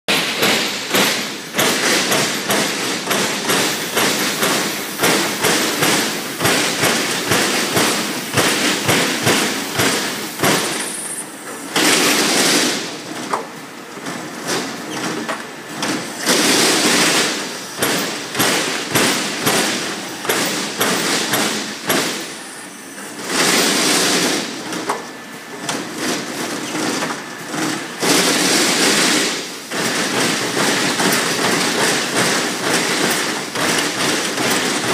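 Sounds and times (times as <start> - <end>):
steady machine noise: 0.1 - 13.2
punch press punching sheet metal: 0.1 - 13.5, 14.1 - 22.4, 23.2 - 34.9.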